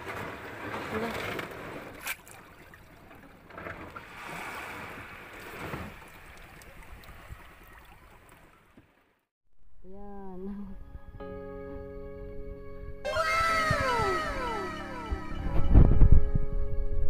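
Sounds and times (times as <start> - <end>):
rushing water: 0.0 - 9.0
wind noise: 12.4 - 17.0.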